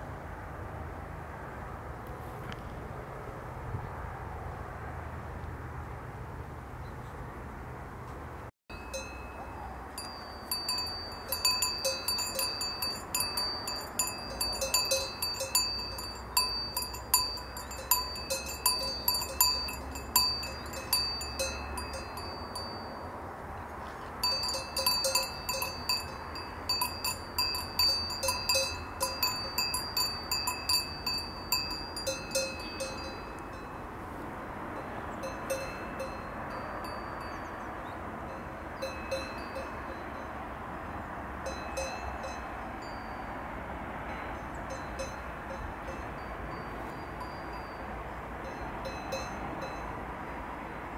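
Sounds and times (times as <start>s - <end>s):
cowbell clanking: 8.7s - 23.1s, 24.2s - 33.9s, 35.2s - 37.6s, 38.8s - 40.4s, 41.4s - 43.3s, 44.1s - 50.0s.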